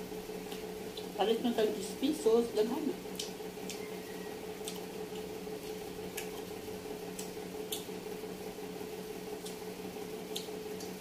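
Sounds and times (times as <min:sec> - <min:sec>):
electrical hum: 0:00.0 - 0:11.0
wet chewing clicks: 0:03.1 - 0:03.9, 0:04.6 - 0:08.0, 0:09.4 - 0:09.6, 0:10.2 - 0:11.0.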